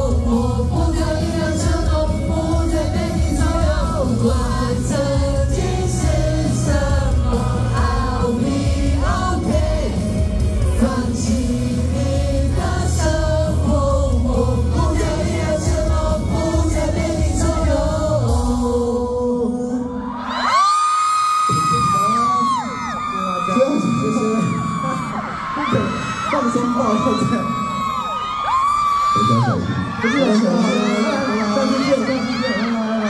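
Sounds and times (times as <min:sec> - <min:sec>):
male vocal group singing: 0:00.0 - 0:20.2
amplified pop music: 0:00.0 - 0:33.0.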